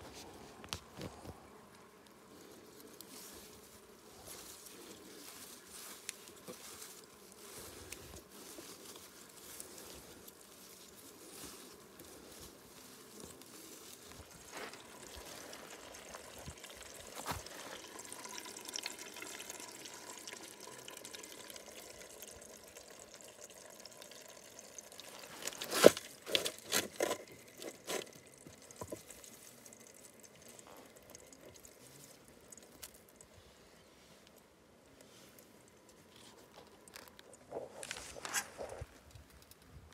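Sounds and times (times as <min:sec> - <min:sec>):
water trickling into trough: 0:14.1 - 0:33.4.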